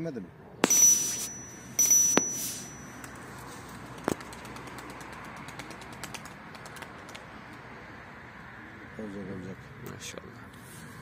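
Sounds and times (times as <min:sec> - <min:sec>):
high bell-like ding: 0:00.6 - 0:03.2.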